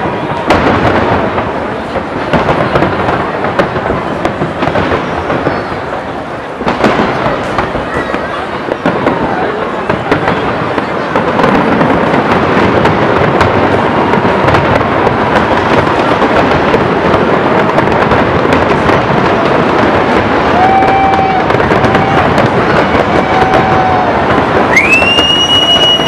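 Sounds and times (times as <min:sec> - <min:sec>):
fireworks crackling and cracking: 0:00.0 - 0:26.0.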